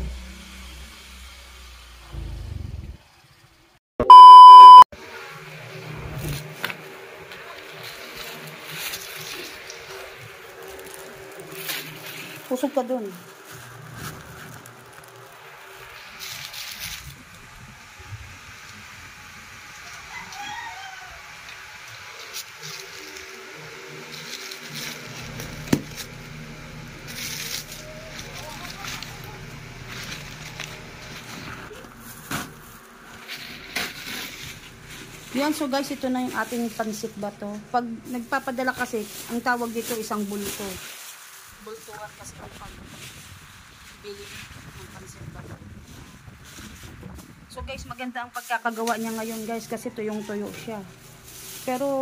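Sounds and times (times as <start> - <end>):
electronic beep: 4.0 - 4.9
plastic sack rustling: 7.7 - 17.4, 27.0 - 37.4, 38.1 - 47.5, 48.3 - 52.0
rooster crowing: 19.8 - 21.9, 49.7 - 50.8.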